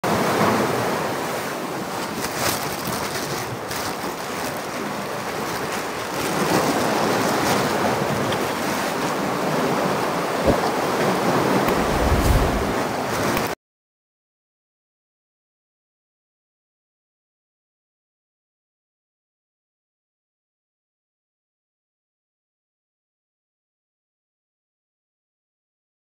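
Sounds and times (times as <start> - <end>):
sea surf: 0.0 - 13.6
wind on microphone: 4.9 - 13.4
low wind rumble: 5.4 - 13.1.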